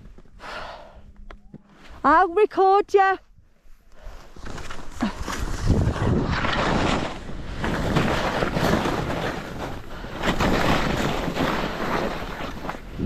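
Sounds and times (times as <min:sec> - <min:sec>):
skis swishing through snow: 0:04.0 - 0:13.0
wind buffeting microphone: 0:05.1 - 0:13.0.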